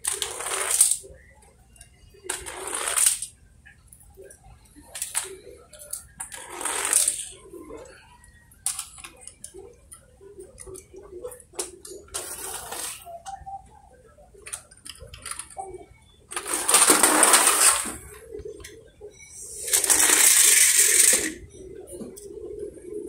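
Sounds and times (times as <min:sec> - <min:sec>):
toy cars rolling and clattering: 0:00.0 - 0:01.2, 0:01.8 - 0:03.4, 0:04.8 - 0:07.9, 0:08.6 - 0:09.5, 0:11.4 - 0:13.4, 0:14.4 - 0:18.3, 0:19.5 - 0:21.4
clicks of toy cars: 0:04.9 - 0:07.3.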